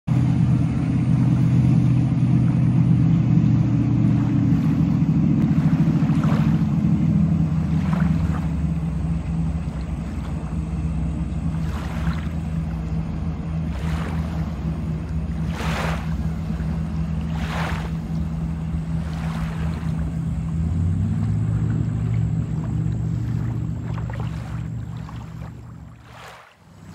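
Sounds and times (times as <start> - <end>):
boat engine droning: 0.0 - 26.9.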